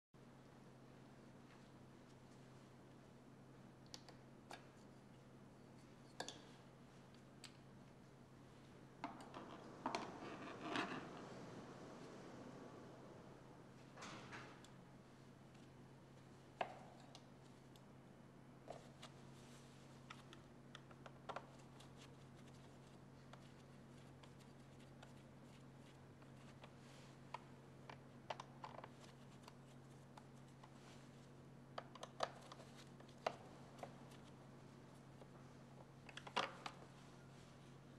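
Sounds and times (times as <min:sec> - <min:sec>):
low steady hum: 0:00.2 - 0:37.9
low hum: 0:08.4 - 0:16.0.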